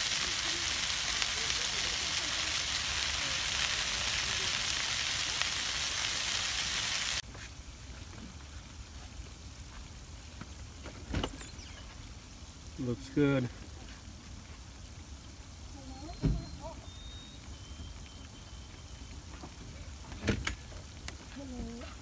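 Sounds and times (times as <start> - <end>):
fish frying in oil: 0.0 - 7.8
meat sizzling on a grill: 0.0 - 20.0.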